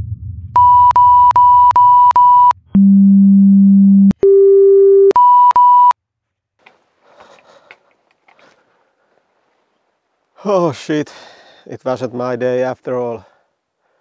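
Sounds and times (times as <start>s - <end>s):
censor bleeps: 0.6s - 6.0s.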